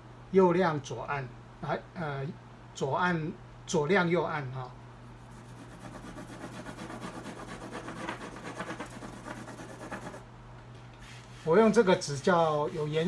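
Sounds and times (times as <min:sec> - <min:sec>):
pencil scratching on paper: 0:05.3 - 0:10.2.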